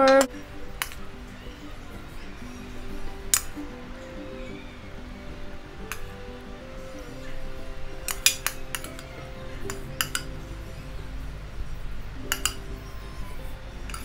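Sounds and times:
soft background music: 0:00.0 - 0:14.0
metal utensil clinking on pan: 0:12.3 - 0:12.7.

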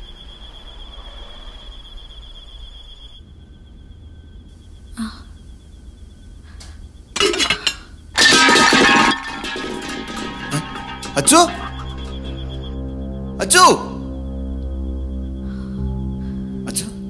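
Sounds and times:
faint room hum: 0:01.0 - 0:11.0.

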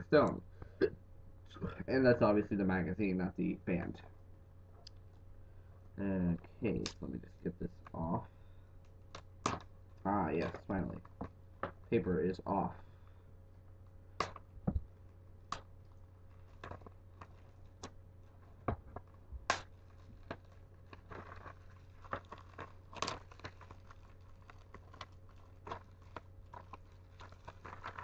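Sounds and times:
wrapping paper crinkling: 0:15.6 - 0:28.0.

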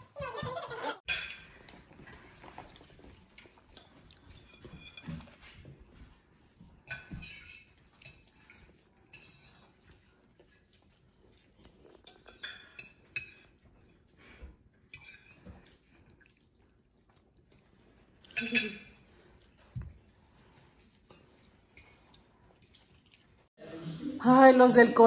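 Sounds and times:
forks clinking on plates: 0:00.2 - 0:10.2, 0:11.8 - 0:14.1, 0:14.9 - 0:15.8, 0:18.1 - 0:19.2.

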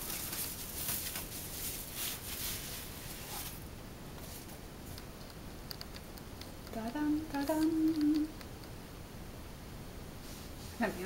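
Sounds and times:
plastic bag crinkling: 0:00.0 - 0:03.6.

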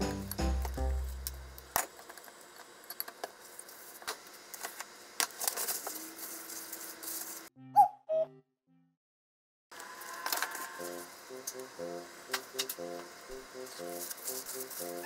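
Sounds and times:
background music: 0:00.0 - 0:01.6, 0:10.5 - 0:15.0.

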